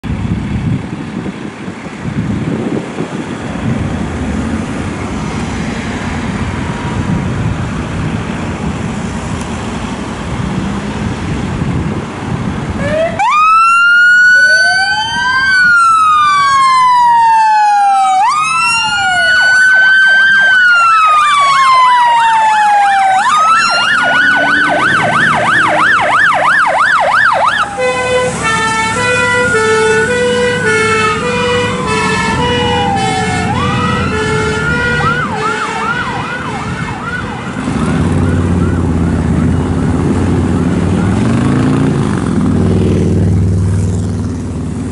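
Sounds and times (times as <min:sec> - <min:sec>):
diesel engines running: 0:00.0 - 0:44.9
siren fast yelp: 0:12.8 - 0:37.6
siren wailing: 0:12.8 - 0:41.4
two-tone horns: 0:27.7 - 0:36.3.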